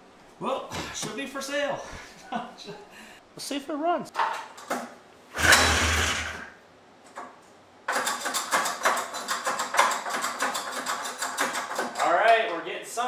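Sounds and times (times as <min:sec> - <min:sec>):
burst of noise: 0:05.3 - 0:06.6
two-stroke engine clatter: 0:05.4 - 0:06.4.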